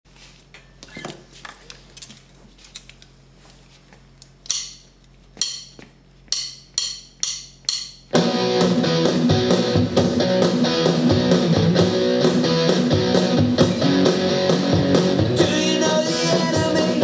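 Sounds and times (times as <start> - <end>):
electric bass playing: 7.6 - 17.0
band backing track: 8.2 - 17.0.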